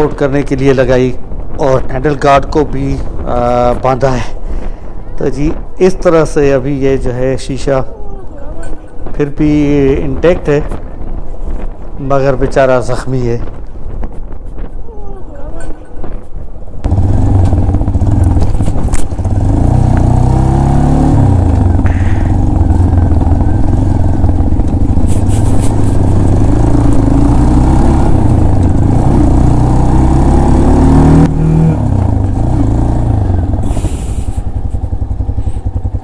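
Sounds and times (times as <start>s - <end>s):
motorcycle engine running: 16.8s - 36.0s.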